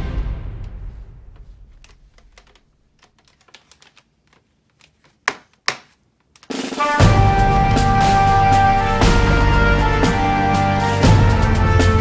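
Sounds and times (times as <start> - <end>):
plastic toy clicks and taps: 1.8 - 6.5
background music: 6.6 - 12.0.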